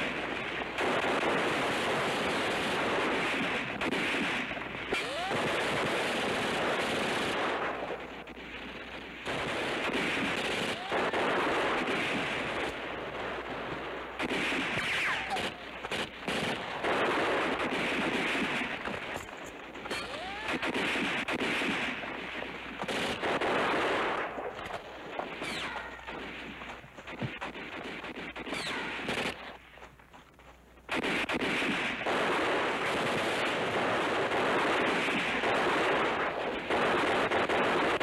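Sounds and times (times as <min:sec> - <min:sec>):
machine-gun and rifle fire: 0:00.0 - 0:29.6, 0:30.9 - 0:38.0.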